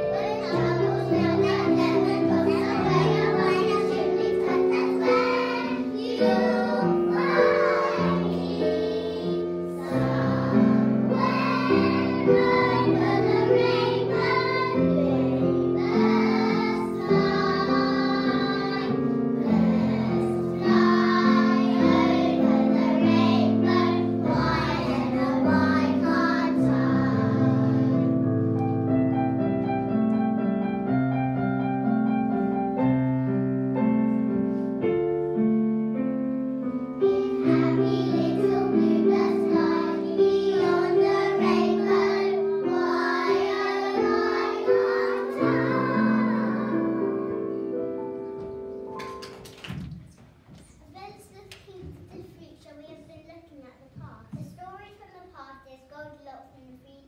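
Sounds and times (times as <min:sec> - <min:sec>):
young children singing: 0:00.0 - 0:28.6, 0:37.0 - 0:49.3
musical accompaniment: 0:00.0 - 0:49.8.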